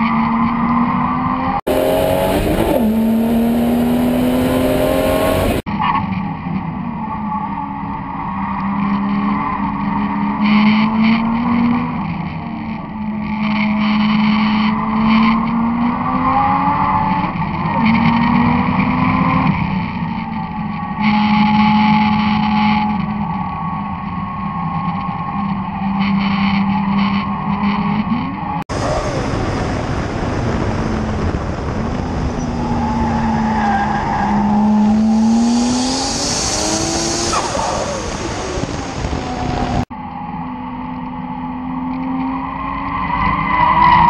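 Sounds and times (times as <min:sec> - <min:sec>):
wind and road noise: 0:00.0 - 0:44.0
race car engine revving: 0:00.1 - 0:05.7, 0:28.7 - 0:39.9.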